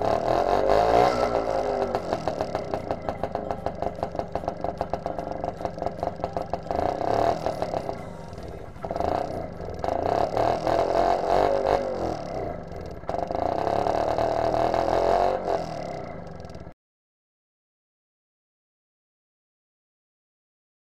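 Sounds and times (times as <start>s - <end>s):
small engine idling and revving: 0.0s - 16.8s.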